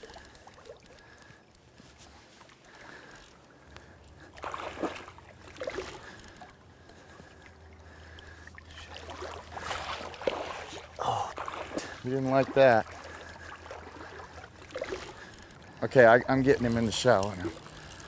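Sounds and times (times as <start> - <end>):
fish splashing in water: 4.2 - 15.8.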